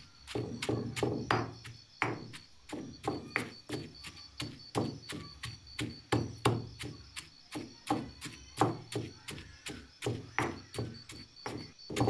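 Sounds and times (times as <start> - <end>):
pestle pounding in stone mortar: 0.2 - 12.0.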